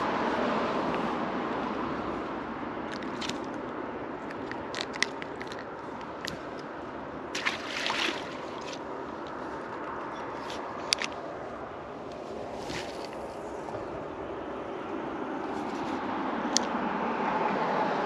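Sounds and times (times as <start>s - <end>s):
handling clicks and scrapes: 2.8s - 6.8s, 8.5s - 14.0s, 15.5s - 16.7s.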